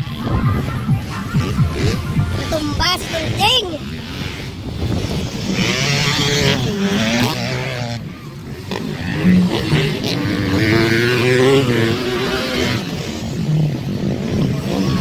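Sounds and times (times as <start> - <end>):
motorcycle engines revving: 0.0 - 15.0.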